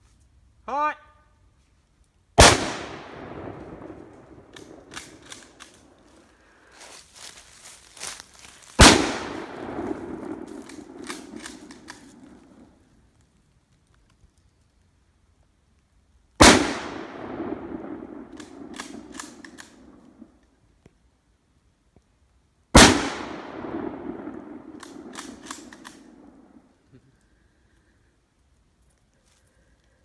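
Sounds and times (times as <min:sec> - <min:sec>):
rifle shots with rolling echo: 0:02.4 - 0:06.3, 0:08.1 - 0:12.9, 0:16.4 - 0:20.4, 0:22.7 - 0:26.8
rifle bolt clicks: 0:04.5 - 0:05.8, 0:10.6 - 0:12.2, 0:18.4 - 0:19.8, 0:24.7 - 0:26.1.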